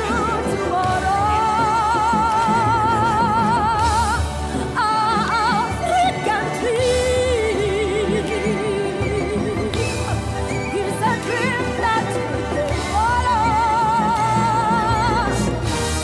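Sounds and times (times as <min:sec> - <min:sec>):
pop backing music: 0:00.0 - 0:16.0.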